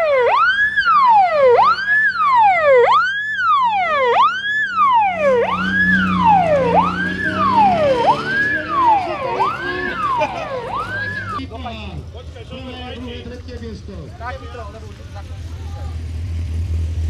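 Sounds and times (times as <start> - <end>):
wailing siren: 0.0 - 11.4.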